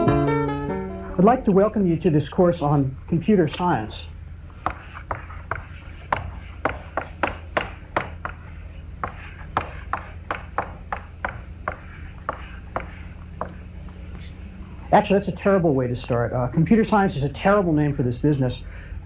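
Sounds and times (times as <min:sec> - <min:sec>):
steady low hum: 0:00.0 - 0:19.0
chalk tapping and scraping on blackboard: 0:04.5 - 0:14.4.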